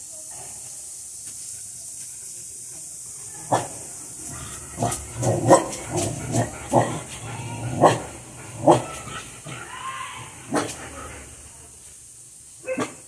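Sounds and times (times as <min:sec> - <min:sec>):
dogs barking and yipping: 0:03.5 - 0:11.5.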